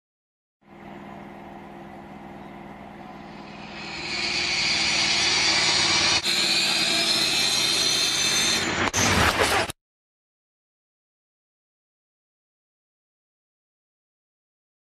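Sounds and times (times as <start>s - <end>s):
high whine rising in pitch: 0.6s - 6.8s.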